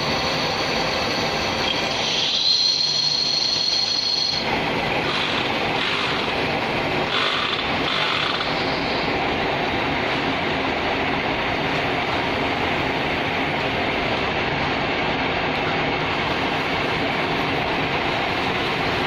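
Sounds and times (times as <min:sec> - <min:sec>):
metal lathe running: 0:00.0 - 0:14.7
high whine: 0:00.0 - 0:19.0.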